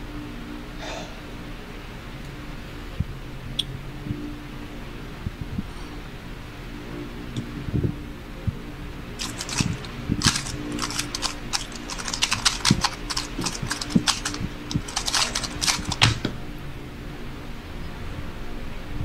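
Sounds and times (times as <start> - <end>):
puzzle cube plastic clicks: 9.2 - 16.3.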